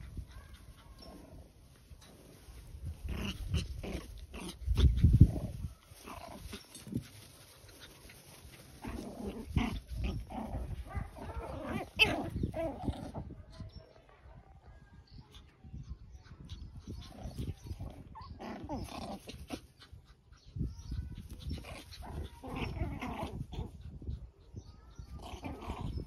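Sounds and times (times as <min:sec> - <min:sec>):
puppies yipping and growling: 0:03.0 - 0:13.4, 0:16.0 - 0:26.0.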